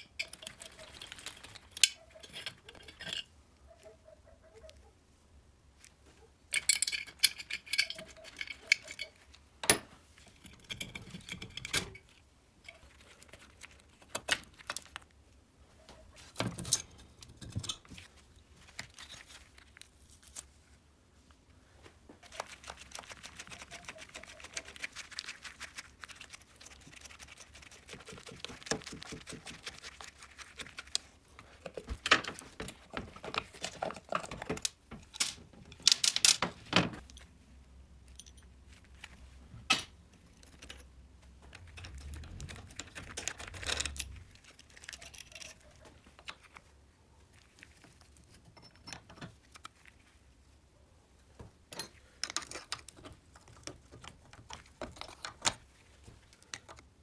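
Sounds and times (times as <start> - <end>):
metal clinks of tools and parts: 0.0 - 3.3, 6.5 - 12.2, 38.1 - 38.5.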